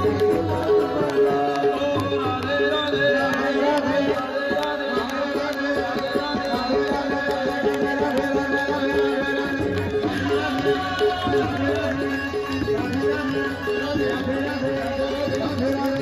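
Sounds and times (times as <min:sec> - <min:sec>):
tabla beat: 0:00.0 - 0:16.0.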